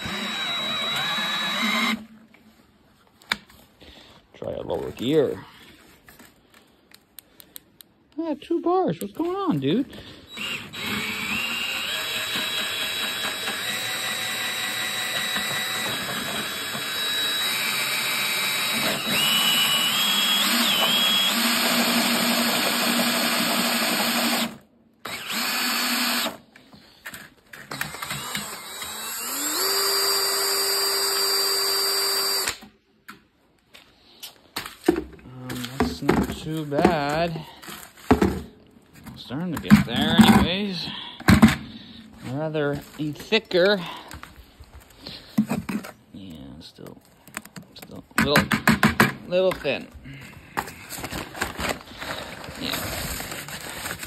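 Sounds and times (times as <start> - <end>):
drill motor mixing mortar: 0.0 - 2.1, 10.3 - 26.4, 27.6 - 32.6.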